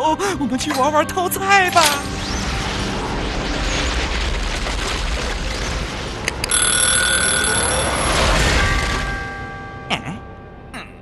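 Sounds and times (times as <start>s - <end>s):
cartoon alarm clock ringing: 6.5s - 8.8s.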